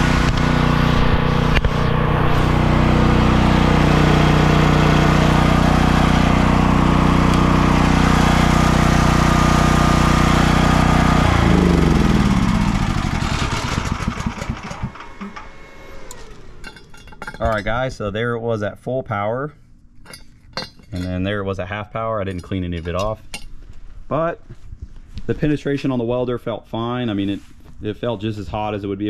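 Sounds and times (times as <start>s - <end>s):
generator engine running: 0.0s - 18.4s.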